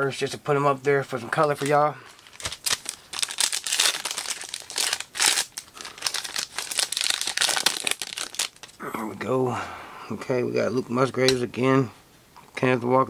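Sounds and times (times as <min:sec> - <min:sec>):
foil wrapper crinkling: 0:01.4 - 0:08.8.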